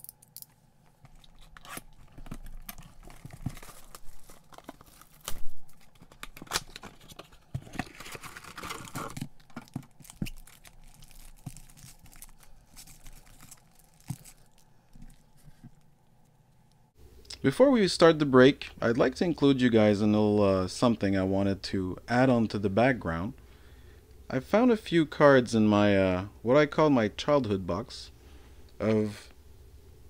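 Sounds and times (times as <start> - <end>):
foil packs crinkling: 1.1 - 15.6.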